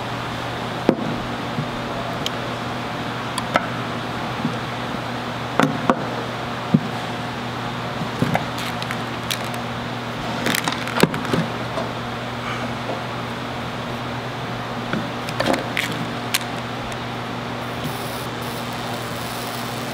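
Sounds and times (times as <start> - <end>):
small metal parts clicking: 8.6 - 9.6, 15.3 - 17.0.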